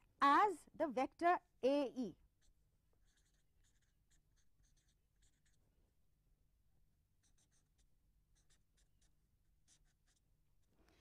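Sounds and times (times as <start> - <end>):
pen scratching strokes: 2.3 - 5.7, 7.2 - 10.8.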